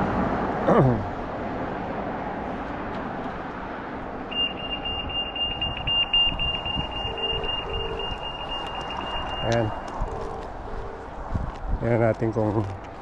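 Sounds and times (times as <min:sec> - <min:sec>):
road traffic: 0:00.0 - 0:13.0
high-pitched electronic beep tone: 0:04.3 - 0:11.1.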